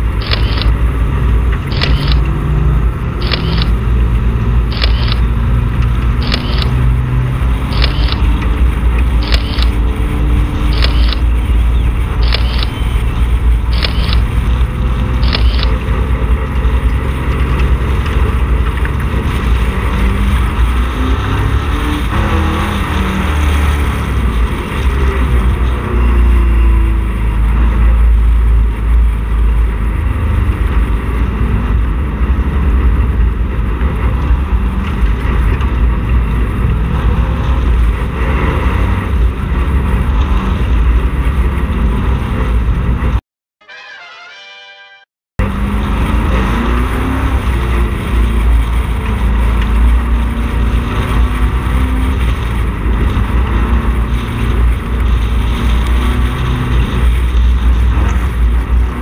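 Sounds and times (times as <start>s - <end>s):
race car engine running: 0.0s - 43.2s, 45.4s - 59.0s
sharp clicks: 0.2s - 0.8s, 1.5s - 2.4s, 3.2s - 3.8s, 4.7s - 6.8s, 7.6s - 10.0s, 10.6s - 11.4s, 12.1s - 14.6s, 15.2s - 16.0s.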